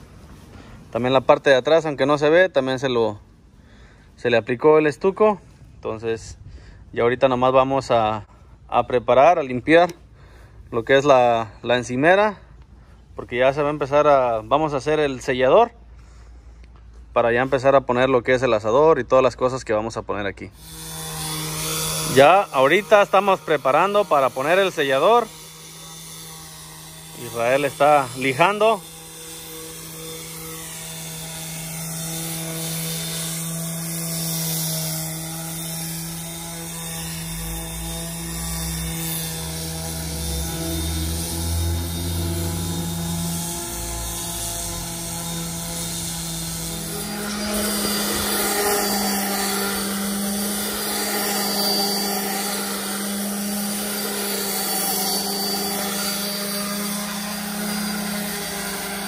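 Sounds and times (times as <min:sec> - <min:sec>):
orbital sander on concrete: 0:00.0 - 0:59.0
second orbital sander: 0:20.3 - 0:59.0.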